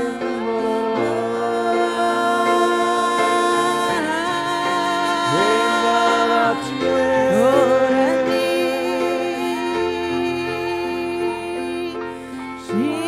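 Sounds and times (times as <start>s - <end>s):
women singing long notes: 0.0s - 12.0s
grand piano chords: 0.0s - 13.0s.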